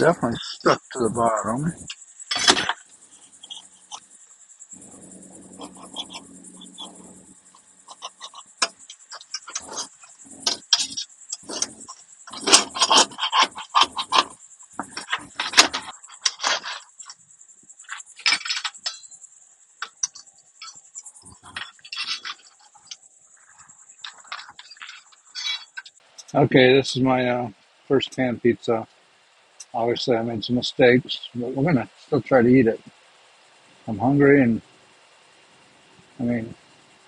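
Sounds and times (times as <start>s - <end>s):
crickets chirping: 0.0s - 37.0s
metal utensils scraping a pan: 5.6s - 7.2s, 7.8s - 17.2s, 17.9s - 19.2s, 19.8s - 26.3s.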